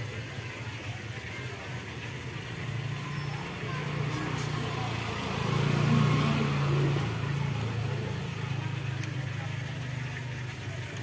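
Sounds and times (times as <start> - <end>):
low engine hum: 0.7 - 11.0
motor scooter engine passing: 2.3 - 11.0.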